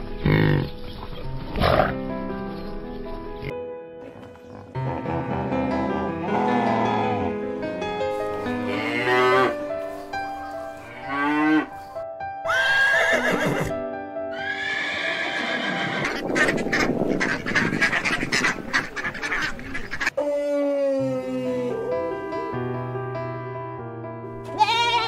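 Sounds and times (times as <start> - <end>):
background music: 0.0 - 18.7, 20.1 - 25.0
cow mooing: 6.0 - 7.3, 8.6 - 9.6, 10.8 - 11.7
horse whinnying: 12.4 - 13.7, 14.3 - 16.2, 24.6 - 25.0.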